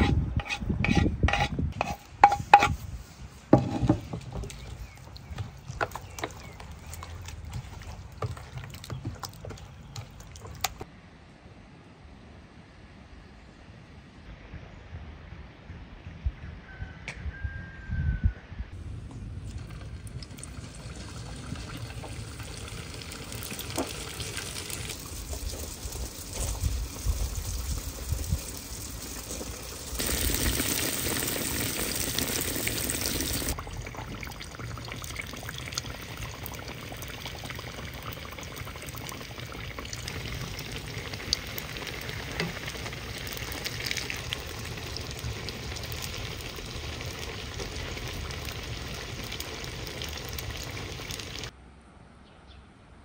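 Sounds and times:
dough sizzling in hot oil: 0:19.5 - 0:51.5.

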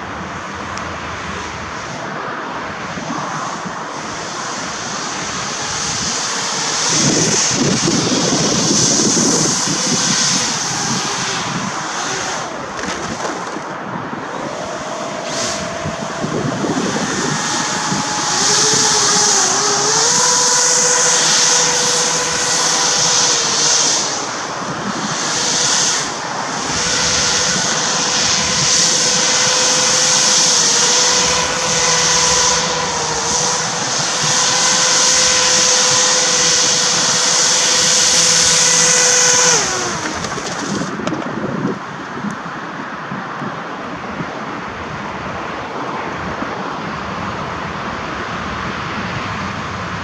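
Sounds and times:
hovercraft motors whining: 0:00.0 - 0:50.0.

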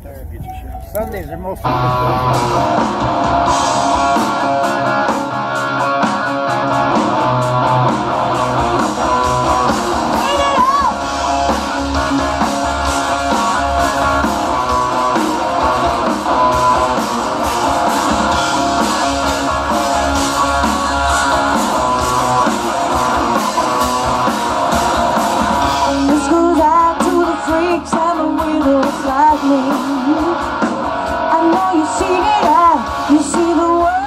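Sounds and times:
bass: 0:00.0 - 0:34.0
drums: 0:00.0 - 0:34.0
bending guitar melody line: 0:00.4 - 0:34.0
electric guitar: 0:01.6 - 0:34.0
person singing: 0:25.8 - 0:30.6, 0:31.2 - 0:34.0.

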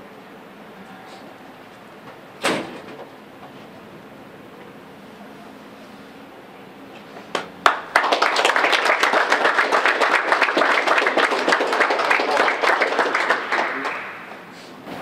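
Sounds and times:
people applauding: 0:07.4 - 0:14.4.

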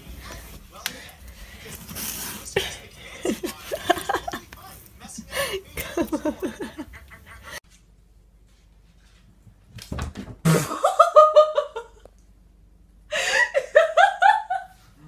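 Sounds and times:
person laughing hard: 0:02.6 - 0:04.4, 0:05.3 - 0:07.6, 0:10.5 - 0:12.1, 0:13.1 - 0:14.8.

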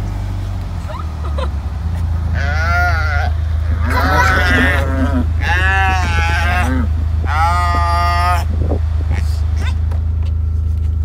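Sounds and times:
vehicle engine idling: 0:00.0 - 0:11.0
cattle bawling: 0:02.0 - 0:09.8.

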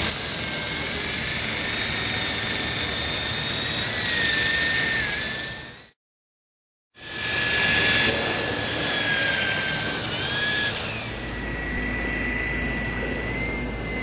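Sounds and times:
rotor whirring: 0:00.0 - 0:06.0, 0:07.0 - 0:14.0
toy helicopter motor whine: 0:00.0 - 0:06.0, 0:07.0 - 0:14.0.

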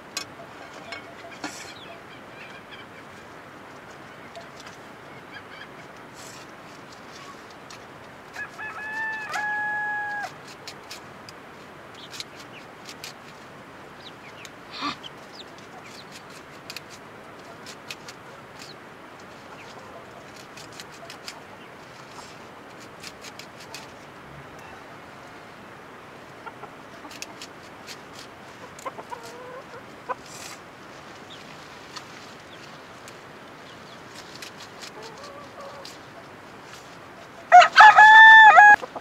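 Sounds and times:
rooster crowing: 0:08.4 - 0:10.4, 0:37.5 - 0:38.8.

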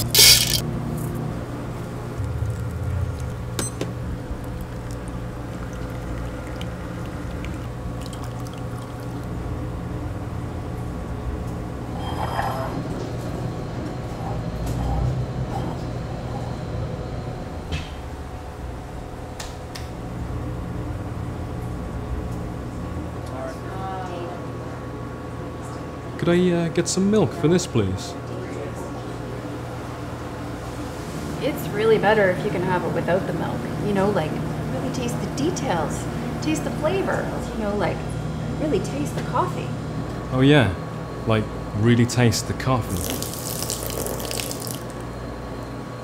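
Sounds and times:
steady low hum: 0:00.0 - 0:46.0
liquid pouring and dripping: 0:04.3 - 0:09.4, 0:42.9 - 0:45.0.

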